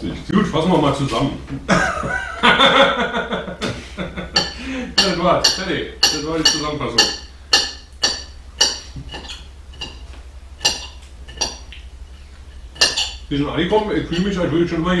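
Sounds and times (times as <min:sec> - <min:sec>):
spoons clinking against bowls: 0:04.4 - 0:10.0, 0:10.6 - 0:11.8, 0:12.8 - 0:13.3.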